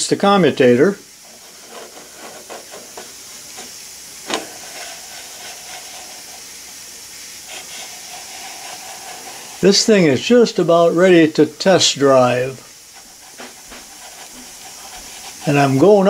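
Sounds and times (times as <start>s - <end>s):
steady hiss: 0.0s - 16.0s
brushes scraping on commutator: 4.5s - 6.6s, 7.4s - 10.9s, 12.3s - 16.0s.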